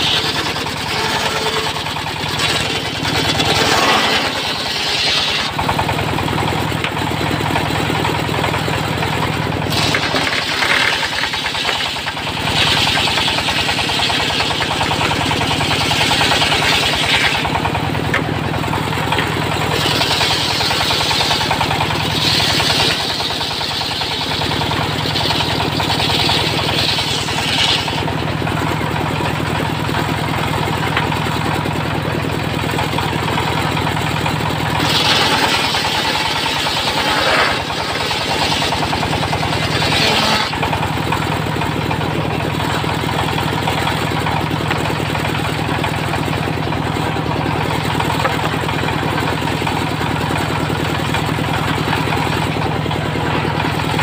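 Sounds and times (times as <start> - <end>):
saw blade cutting wood: 0.0 - 5.9, 9.6 - 18.3, 18.9 - 28.2, 34.6 - 40.9
diesel engine running: 0.0 - 54.0.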